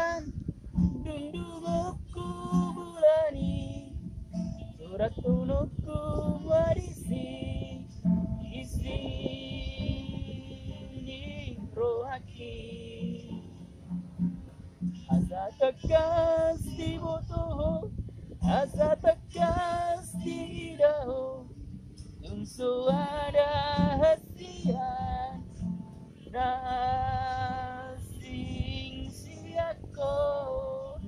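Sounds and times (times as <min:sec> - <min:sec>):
acoustic guitar: 0:00.0 - 0:31.0
low wind rumble: 0:00.0 - 0:31.0
woman singing: 0:00.9 - 0:04.0, 0:04.6 - 0:07.9, 0:22.2 - 0:25.5.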